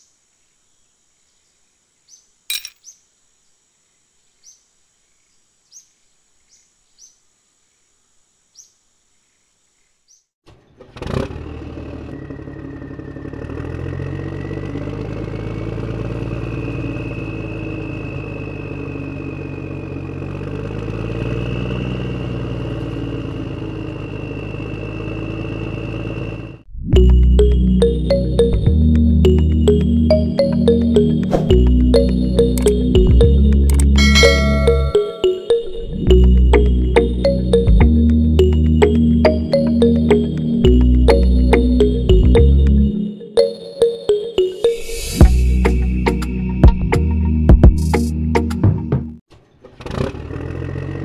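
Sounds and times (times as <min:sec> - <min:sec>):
tractor engine with whine: 0:10.5 - 0:43.5, 0:49.3 - 0:51.0
click: 0:33.6 - 0:33.9.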